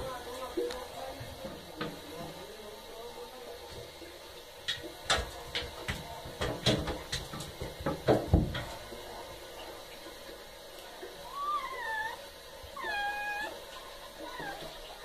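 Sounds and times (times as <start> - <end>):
cat paws tapping in bathtub: 4.6 - 9.1.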